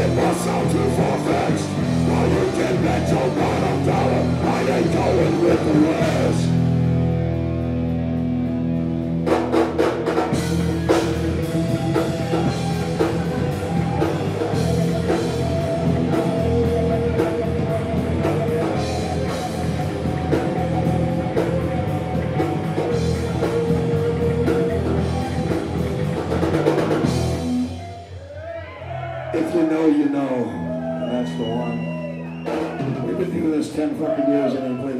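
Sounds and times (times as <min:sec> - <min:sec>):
electric guitars: 0:00.0 - 0:29.6
bass guitar: 0:00.0 - 0:34.9
drum kit with cymbals: 0:09.2 - 0:28.4.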